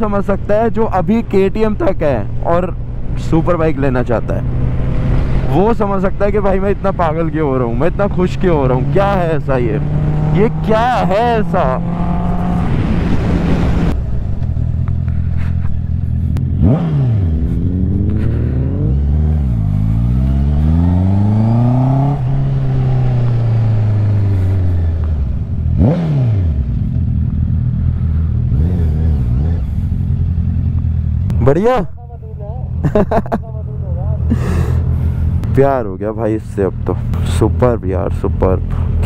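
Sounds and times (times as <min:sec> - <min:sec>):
motorcycle engine revving: 0:01.1 - 0:32.0
wind noise: 0:11.5 - 0:26.6.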